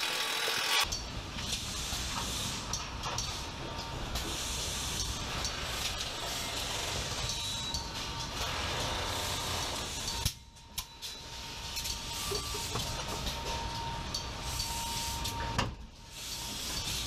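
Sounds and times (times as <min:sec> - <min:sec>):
machinery hiss and rumble: 0:00.3 - 0:10.2
thin high whine: 0:06.5 - 0:17.0.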